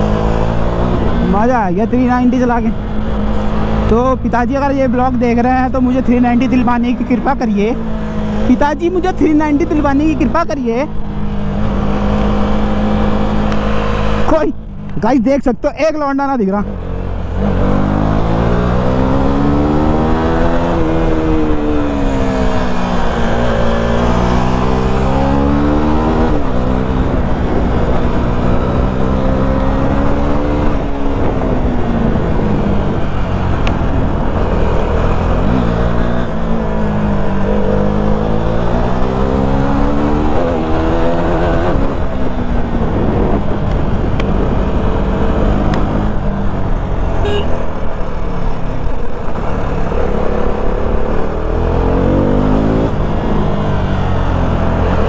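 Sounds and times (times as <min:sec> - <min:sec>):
motorcycle engine revving: 0:00.0 - 0:15.0, 0:16.6 - 0:55.0
wind noise on microphone: 0:19.4 - 0:55.0.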